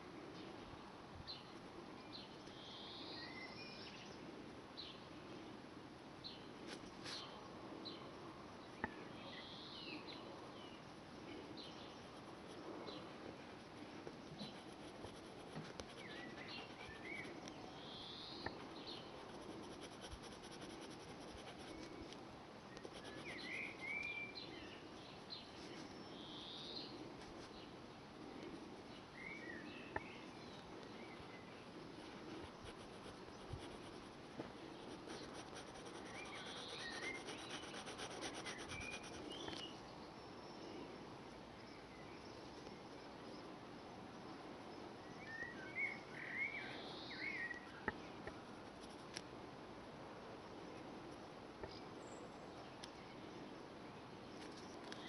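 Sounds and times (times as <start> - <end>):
pencil scratching on paper: 14.4 - 17.4, 19.2 - 21.9, 22.8 - 23.8, 32.3 - 34.2, 34.8 - 39.4, 48.6 - 49.0.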